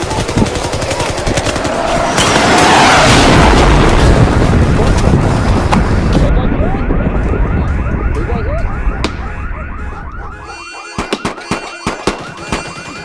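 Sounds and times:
rapid automatic gunfire: 0:00.0 - 0:02.5
loud blast: 0:01.3 - 0:08.0
car alarm chirping: 0:06.6 - 0:13.0.

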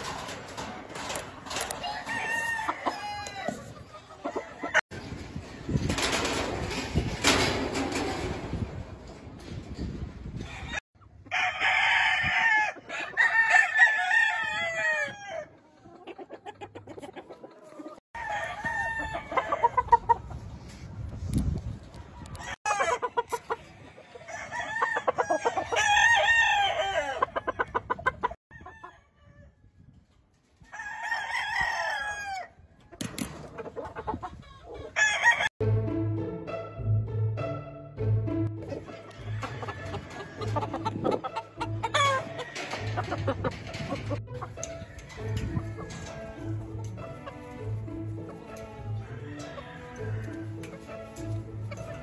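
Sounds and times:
chickens clucking: 0:00.0 - 0:11.3, 0:15.0 - 0:26.0, 0:26.8 - 0:28.7, 0:32.8 - 0:35.4, 0:38.5 - 0:52.0
roosters crowing: 0:01.5 - 0:04.8, 0:10.4 - 0:15.6, 0:18.2 - 0:20.0, 0:22.3 - 0:27.8, 0:30.7 - 0:32.6, 0:34.4 - 0:35.5, 0:39.0 - 0:51.7.

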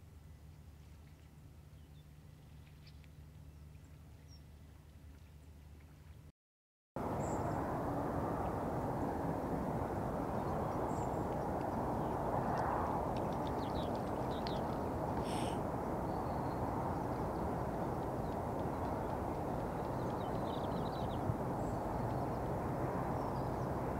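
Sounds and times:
distant road traffic hum: 0:07.0 - 0:23.9
small birds chirping: 0:13.2 - 0:22.5
harsh bird call: 0:15.2 - 0:15.6.

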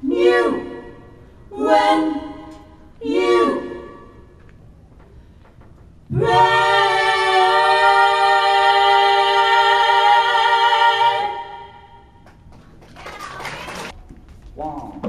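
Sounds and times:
women singing in harmony: 0:00.0 - 0:04.3, 0:06.1 - 0:12.1.

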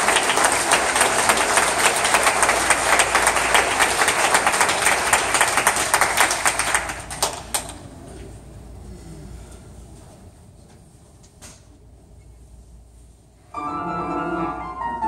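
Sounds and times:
large audience applauding: 0:00.0 - 0:07.8.

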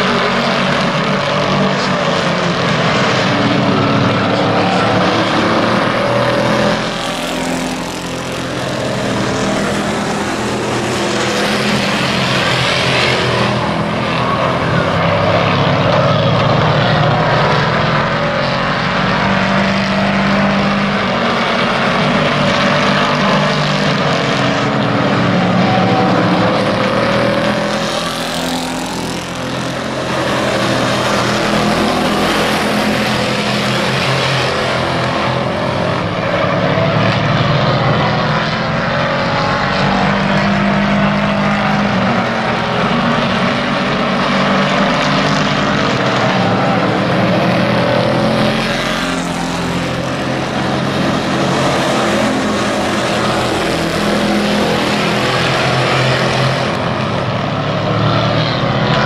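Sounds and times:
race truck engines at speed: 0:00.0 - 0:59.0.

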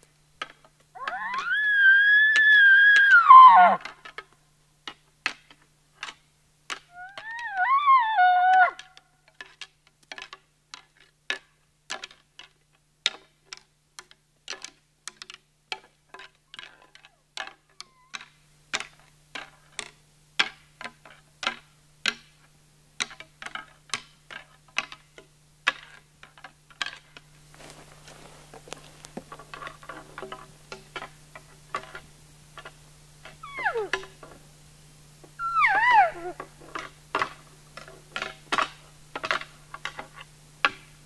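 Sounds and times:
twigs snapping underfoot: 0:26.8 - 0:32.7
footsteps on dry forest litter: 0:27.4 - 0:29.4.

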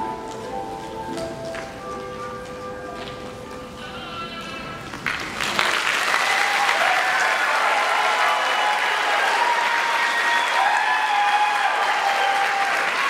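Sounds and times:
audience applauding: 0:04.9 - 0:13.0.

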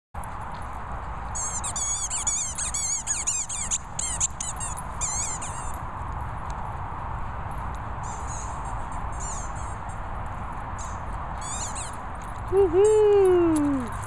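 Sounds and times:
squeaky toy squeaking: 0:01.4 - 0:05.8, 0:11.4 - 0:12.1.

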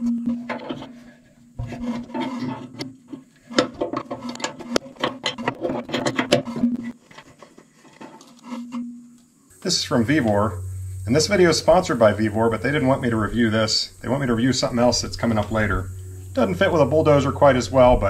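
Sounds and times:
clicks taps and scraping on metal: 0:00.3 - 0:01.0, 0:01.6 - 0:08.9.

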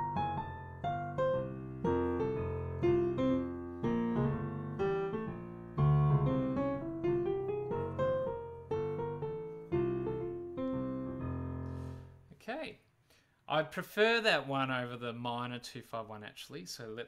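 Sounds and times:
jazz piano playing: 0:00.0 - 0:12.3.

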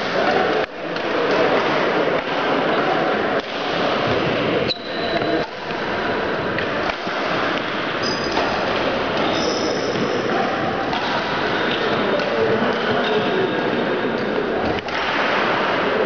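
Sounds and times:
din of busy hall: 0:00.0 - 0:16.0
racket hitting shuttlecock: 0:03.4 - 0:04.3, 0:06.5 - 0:12.9
shoes squeaking on court: 0:04.7 - 0:05.4, 0:09.2 - 0:10.2.

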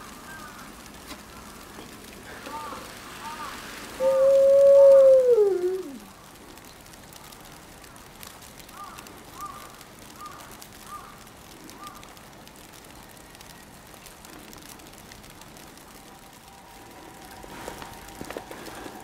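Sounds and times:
distant ambulance siren: 0:15.8 - 0:19.0.

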